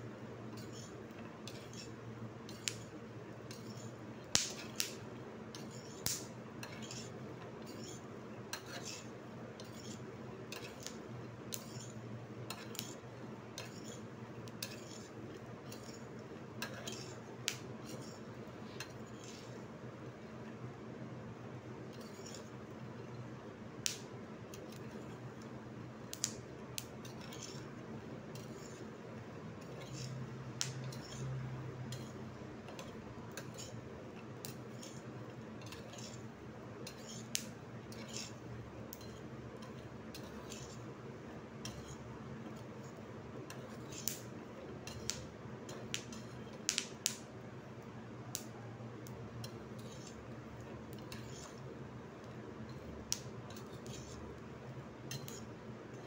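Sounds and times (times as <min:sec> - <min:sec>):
steady low hum: 0:00.0 - 0:56.0
spoon stirring nuts in a pan: 0:00.5 - 0:18.0, 0:23.8 - 0:47.2.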